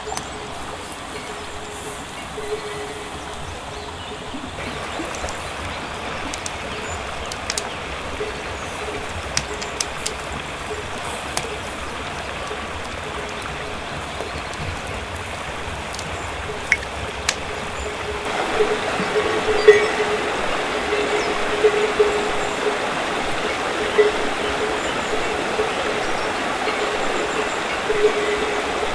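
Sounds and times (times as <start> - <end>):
river flowing: 0.0 - 28.9
fire pops and crackles: 14.0 - 17.6.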